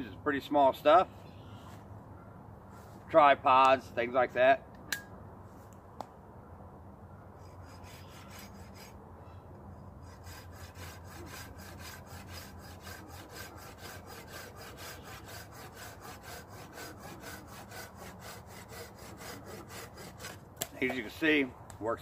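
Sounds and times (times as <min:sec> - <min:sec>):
pruning saw cutting branch: 0:10.1 - 0:21.2.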